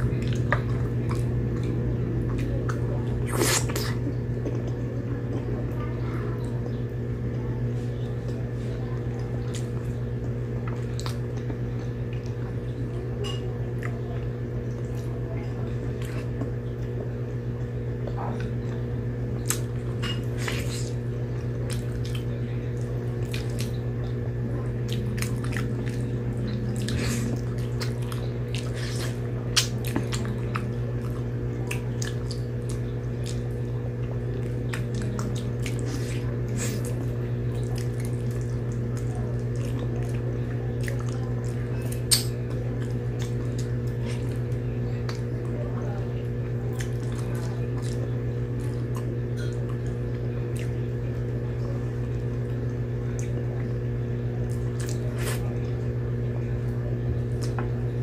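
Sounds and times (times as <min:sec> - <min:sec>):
steady low hum: 0:00.0 - 0:58.0
wet chewing and lip smacks: 0:19.4 - 0:24.2, 0:24.9 - 0:45.2, 0:46.7 - 0:50.8, 0:54.4 - 0:55.8.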